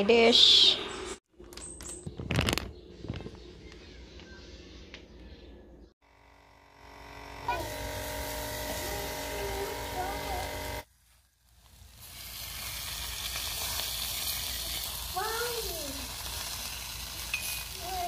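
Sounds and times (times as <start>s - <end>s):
chicken sizzling on a grill: 7.0s - 18.0s.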